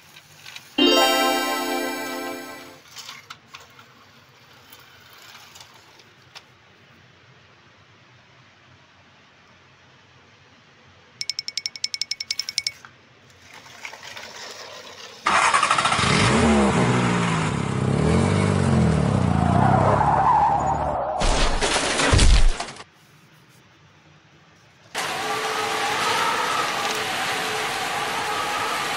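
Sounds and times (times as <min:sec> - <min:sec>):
fast rattle: 0:11.2 - 0:12.8
engine starting and revving: 0:15.3 - 0:19.5.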